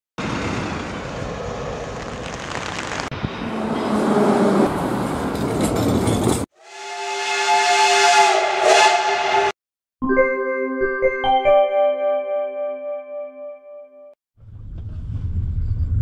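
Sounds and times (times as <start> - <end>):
train rushing past: 0.2 - 9.6
steam locomotive whistle: 6.6 - 9.6
synthesized music jingle: 9.3 - 14.2.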